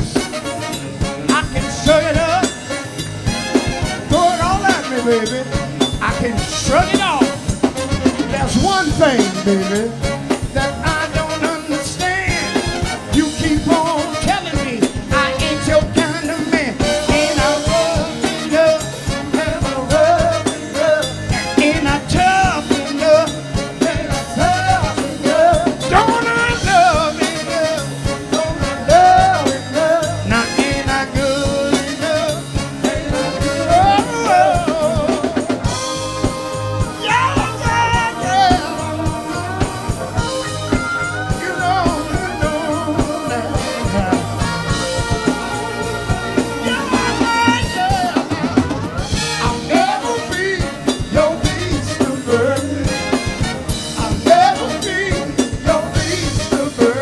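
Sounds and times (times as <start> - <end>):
man singing lead: 0.0 - 3.0, 3.8 - 57.0
drum kit beat: 0.0 - 57.0
held band chords: 0.0 - 57.0
backing vocals: 13.2 - 57.0.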